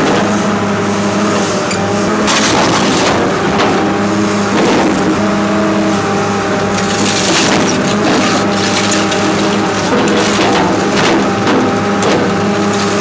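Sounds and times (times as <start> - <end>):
excavator diesel engine running: 0.0 - 13.0
bucket scraping soil and metal: 6.7 - 13.0.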